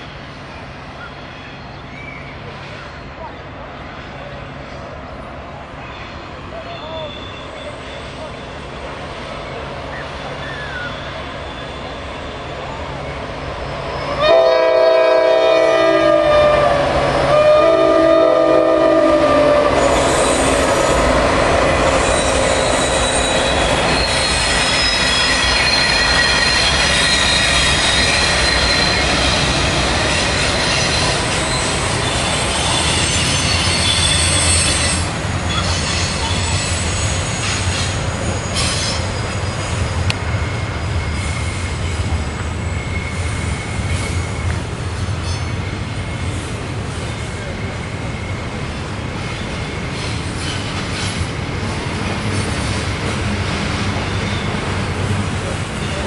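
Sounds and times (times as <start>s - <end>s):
train wheels squealing on rails: 0.0s - 56.0s
locomotive air horn blasts: 14.0s - 20.1s
rumble of engines and rolling cars: 28.0s - 56.0s.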